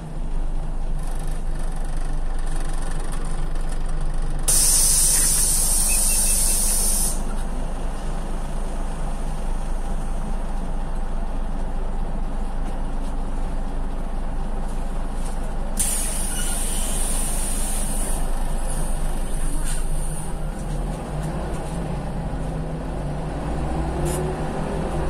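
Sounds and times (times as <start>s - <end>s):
bus diesel engine idling: 0.0s - 25.0s
compressed air hiss: 4.5s - 7.3s, 15.8s - 20.2s.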